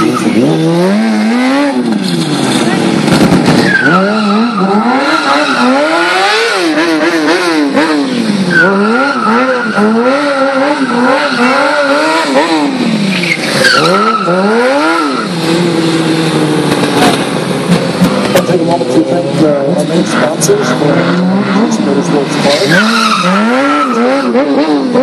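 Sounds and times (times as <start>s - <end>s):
motorcycle engine revving: 0.0s - 25.0s
tyre squealing: 3.5s - 6.8s, 8.1s - 17.1s, 22.4s - 25.0s.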